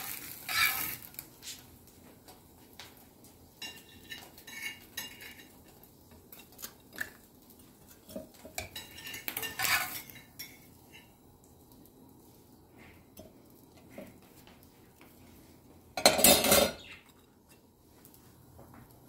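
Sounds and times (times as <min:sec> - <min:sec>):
metal utensils clinking and scraping: 0:00.0 - 0:01.2, 0:03.6 - 0:07.2, 0:07.8 - 0:11.1, 0:16.0 - 0:17.6
utensils clattering: 0:00.0 - 0:01.2, 0:03.6 - 0:07.1, 0:07.8 - 0:11.1, 0:16.0 - 0:17.2.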